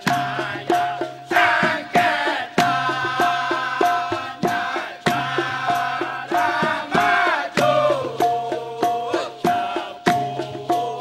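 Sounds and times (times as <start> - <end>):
male chorus singing: 0.0 - 11.0
sharp percussion strokes: 0.0 - 11.0.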